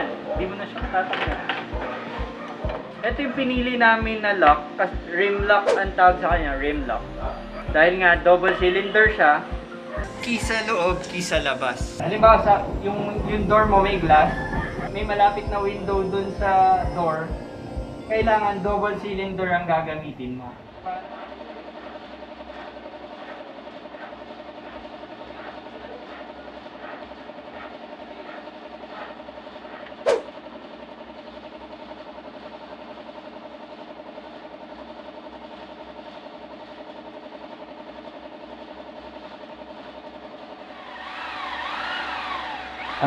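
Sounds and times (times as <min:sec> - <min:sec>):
mechanical hum: 0:00.0 - 0:43.0.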